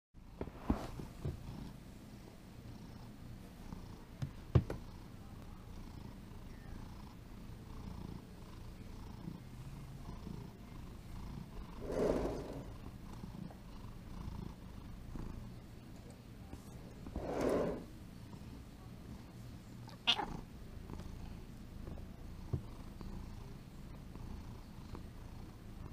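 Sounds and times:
cat purring: 0.2 - 25.9
short rubbing noise: 11.8 - 12.7, 17.0 - 17.9.

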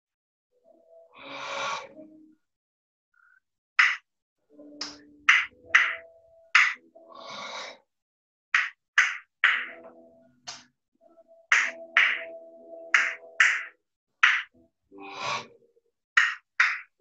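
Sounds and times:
slap-like drum hits: 8.6 - 9.9, 11.5 - 12.3.

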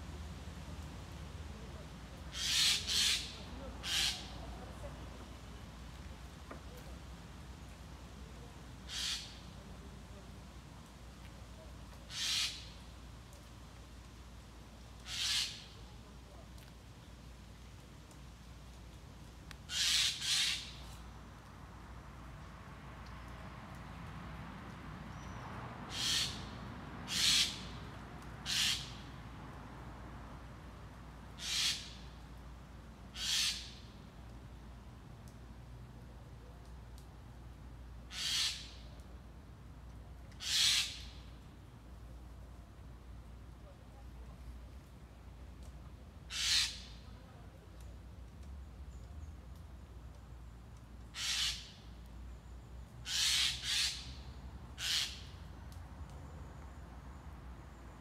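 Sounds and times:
magpie harsh calls: 2.3 - 4.4, 8.9 - 9.4, 12.1 - 12.7, 15.1 - 15.7, 19.7 - 20.8, 25.9 - 26.5, 27.1 - 27.7, 28.5 - 29.0, 31.4 - 32.0, 33.2 - 33.8, 38.1 - 38.8, 40.4 - 41.1, 46.3 - 47.0, 51.2 - 51.9, 53.1 - 54.2, 54.8 - 55.4.

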